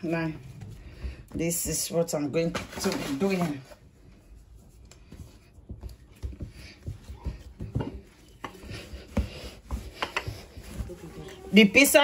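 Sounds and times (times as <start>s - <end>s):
rolling pin knocking on countertop: 5.7s - 10.8s.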